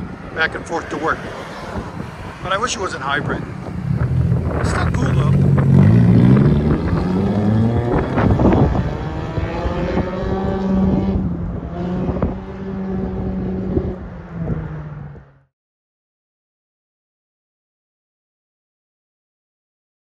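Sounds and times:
car exhaust revving: 1.7 - 14.9.

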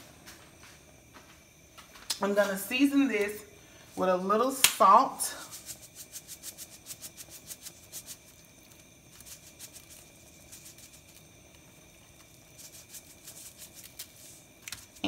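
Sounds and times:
salt shaker ticking: 5.4 - 15.0.

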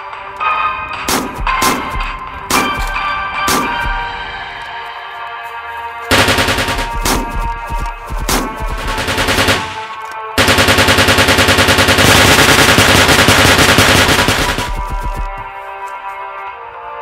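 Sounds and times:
background music: 0.0 - 17.0
machine-gun fire: 6.1 - 15.4.

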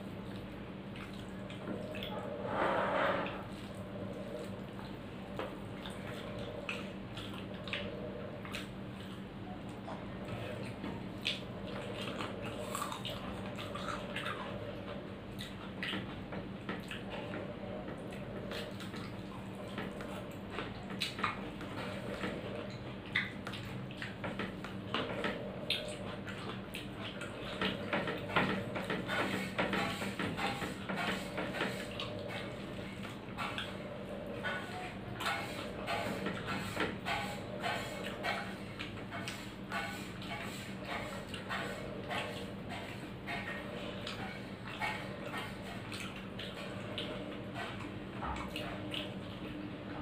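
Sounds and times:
steady low hum: 0.0 - 50.0
lip smacks and chewing: 3.6 - 34.4, 37.2 - 49.7
fingers working food on plate: 10.2 - 49.5.

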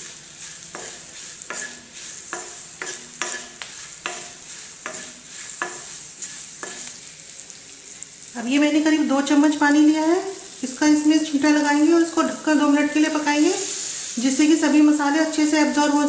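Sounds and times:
wooden spatula scraping a pan: 0.0 - 8.2, 12.8 - 14.4
chillies sizzling in oil: 0.0 - 16.0.

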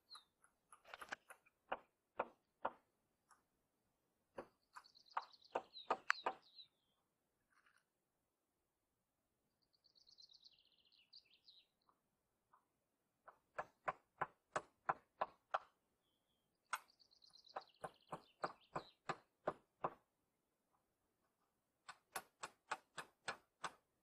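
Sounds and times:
hammer driving nails into wood: 21.8 - 24.0.

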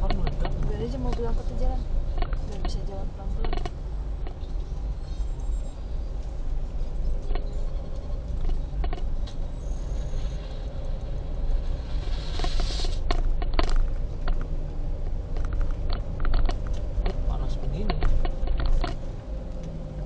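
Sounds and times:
car engine and road rumble: 0.0 - 20.0
rush of noise: 8.1 - 20.0.

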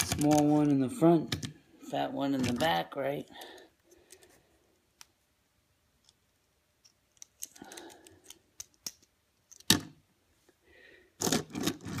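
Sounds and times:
plastic toy parts clicking: 6.8 - 9.9.

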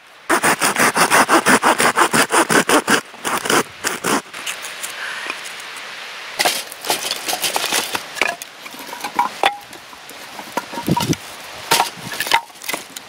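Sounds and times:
firewood sticks knocking together: 6.4 - 9.8, 10.4 - 13.0.

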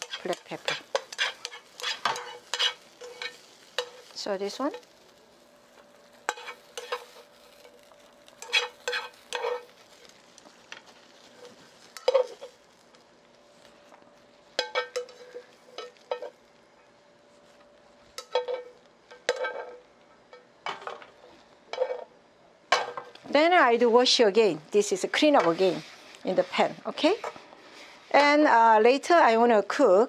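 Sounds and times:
utensil scraping and tapping pan: 0.0 - 4.0, 8.4 - 9.7
carrot stir-frying in pan: 0.0 - 30.0.

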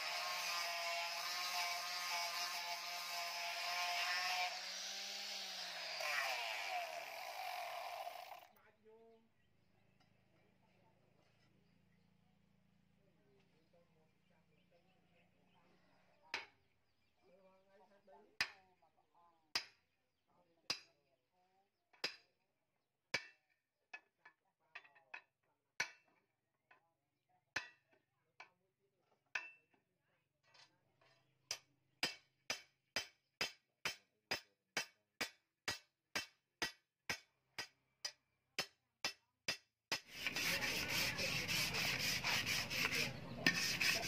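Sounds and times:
sandpaper rasping on wood: 0.0 - 7.0, 39.9 - 44.0.

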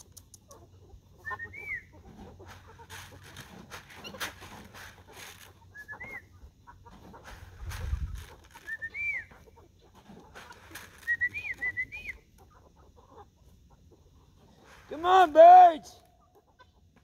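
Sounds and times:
chickens chirping: 0.0 - 15.3, 15.9 - 17.0
scuffling and clicks: 2.1 - 6.2, 6.9 - 12.1.

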